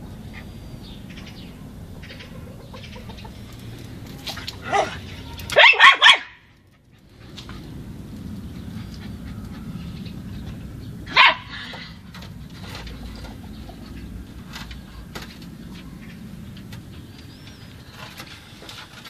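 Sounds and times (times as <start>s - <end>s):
scratching at wooden fence: 0.2s - 6.0s, 6.6s - 19.0s
small dog barking: 4.6s - 6.5s, 11.1s - 11.9s.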